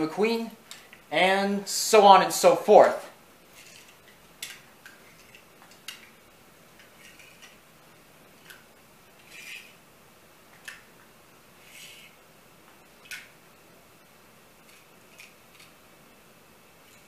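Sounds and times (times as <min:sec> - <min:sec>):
toy cars clicking: 0:03.6 - 0:06.2, 0:06.8 - 0:07.6, 0:09.2 - 0:09.8, 0:11.6 - 0:12.1, 0:14.7 - 0:15.7.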